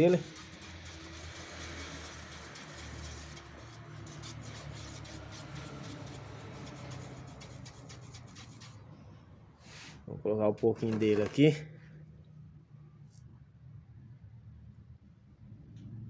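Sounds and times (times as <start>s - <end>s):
stick scraping paint can: 0.0s - 8.8s, 10.6s - 11.7s.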